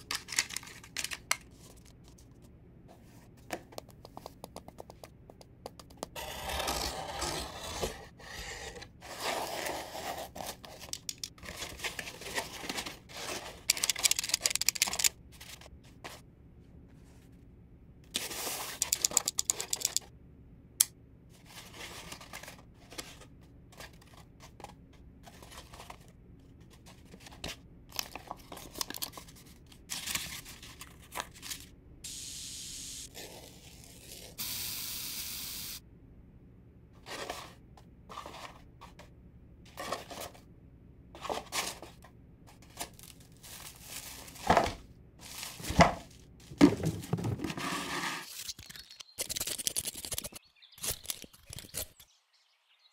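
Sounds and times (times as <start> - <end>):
cardboard cut and torn: 6.2 - 10.6, 33.1 - 34.4
spray can hissing: 32.1 - 33.1
mesh sacks rustling and thumping: 43.5 - 47.5.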